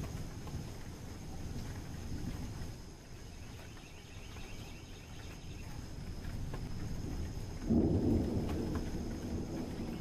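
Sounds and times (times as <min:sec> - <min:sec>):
insects chirring: 0:00.0 - 0:10.0
thunder rumbling: 0:05.1 - 0:10.0.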